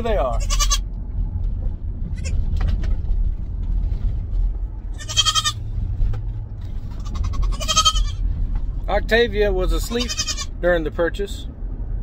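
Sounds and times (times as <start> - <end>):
low vehicle rumble: 0.0 - 12.0
goat bleating: 0.1 - 0.8, 4.9 - 5.6, 6.9 - 8.2, 9.8 - 10.6.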